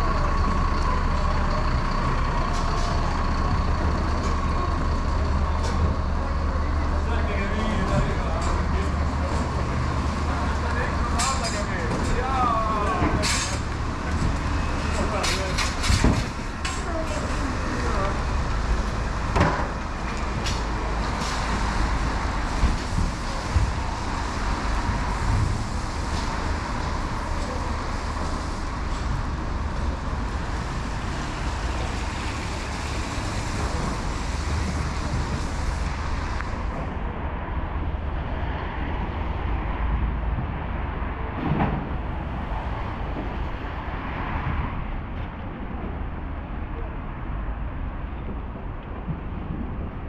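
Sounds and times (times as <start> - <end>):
engines rumbling: 0.0 - 50.0
tyre hiss on wet road: 19.9 - 36.8.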